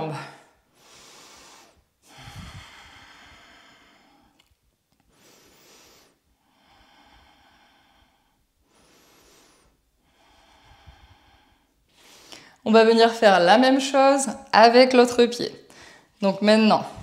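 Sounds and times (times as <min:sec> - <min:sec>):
woman breathing faintly: 0:00.2 - 0:12.7, 0:15.7 - 0:16.2.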